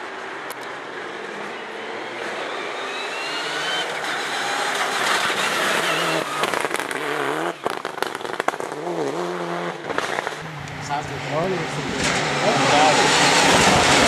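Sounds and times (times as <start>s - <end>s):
rally car engine at full throttle: 0.0s - 14.0s
exhaust crackles and pops: 6.2s - 11.0s.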